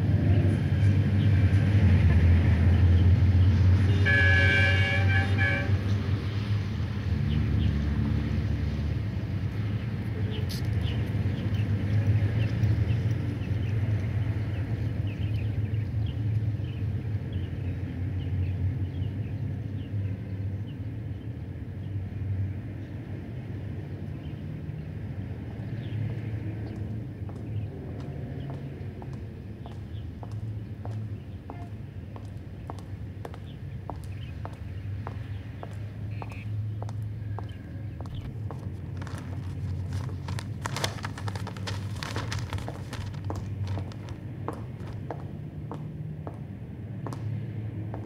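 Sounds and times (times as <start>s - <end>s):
distant road traffic rumble: 0.0s - 48.0s
birds chirping: 25.7s - 45.3s
high-heeled footsteps clicking: 26.7s - 48.0s
newspaper pages rustling: 38.2s - 45.2s.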